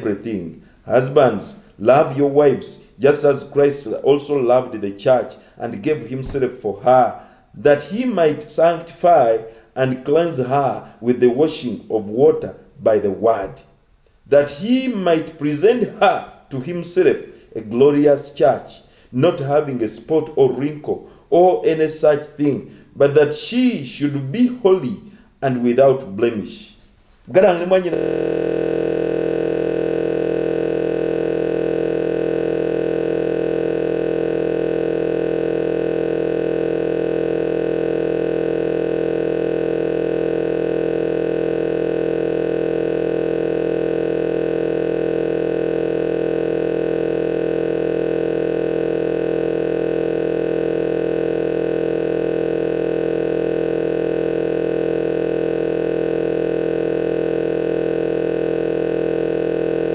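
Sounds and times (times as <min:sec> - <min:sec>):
loud electrical hum: 0:27.6 - 0:59.9.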